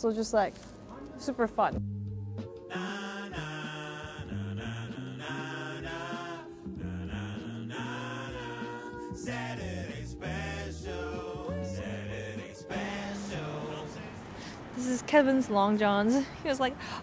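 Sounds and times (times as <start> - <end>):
song with vocals and bass: 1.8 - 14.9.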